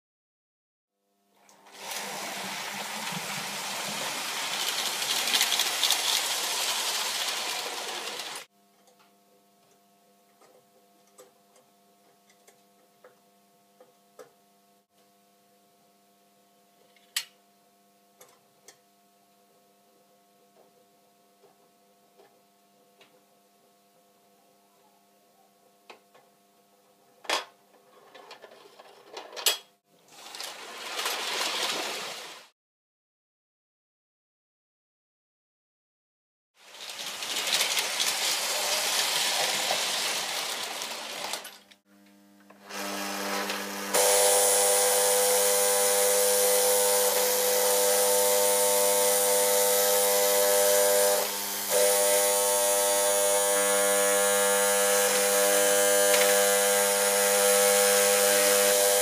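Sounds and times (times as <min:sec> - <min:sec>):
model train rattling whir: 0:03.1 - 0:08.5, 0:36.6 - 0:41.7, 0:43.4 - 0:59.0
low electrical hum: 0:08.4 - 0:30.4.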